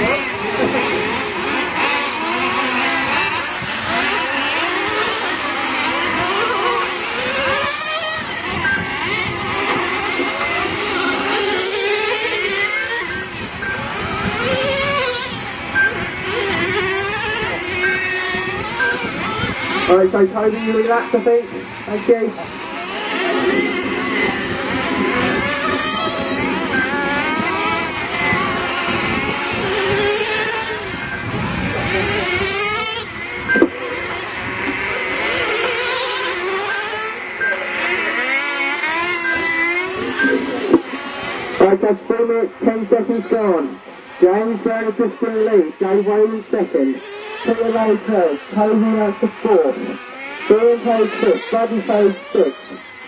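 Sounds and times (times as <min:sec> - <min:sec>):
rc car engines whining: 0:00.0 - 0:53.0
short high beeps: 0:08.6 - 0:09.3, 0:10.2 - 0:20.0, 0:22.3 - 0:29.3, 0:29.9 - 0:32.0, 0:33.3 - 0:34.1, 0:36.1 - 0:41.2.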